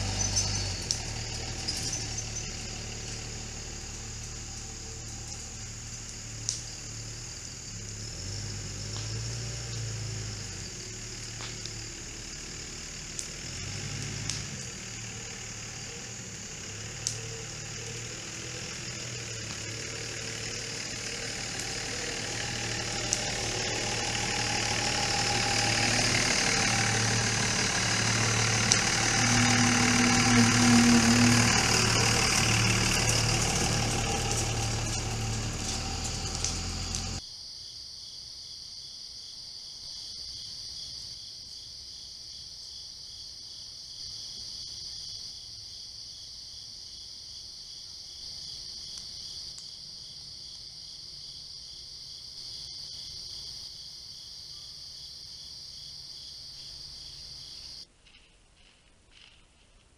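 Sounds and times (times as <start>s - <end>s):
pickup truck engine passing: 0.0s - 37.2s
crickets and insects chirping: 0.0s - 57.9s.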